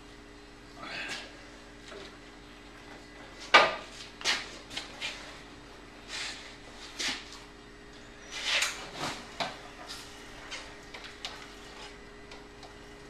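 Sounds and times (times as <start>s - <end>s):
faint steady hum: 0.0s - 13.0s
patient lift scraping and rustling: 8.2s - 12.0s.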